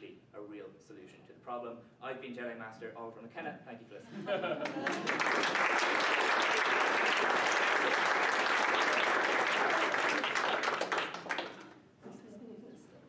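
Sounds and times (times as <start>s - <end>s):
crowd applause: 4.6s - 11.8s.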